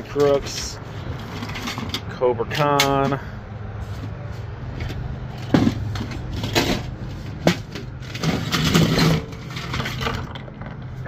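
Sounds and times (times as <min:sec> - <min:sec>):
plastic figures clattering: 0:04.8 - 0:11.0.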